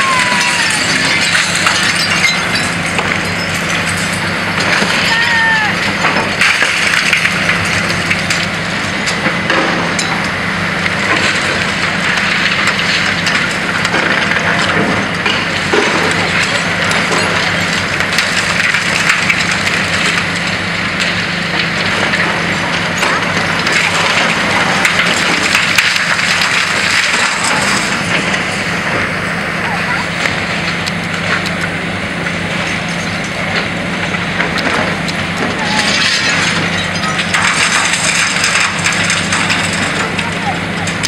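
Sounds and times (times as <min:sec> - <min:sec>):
concrete rubble cracking and clattering: 0:00.0 - 0:41.0
excavator engine drone: 0:00.0 - 0:41.0
hydraulic grab crunching concrete: 0:30.2 - 0:41.0.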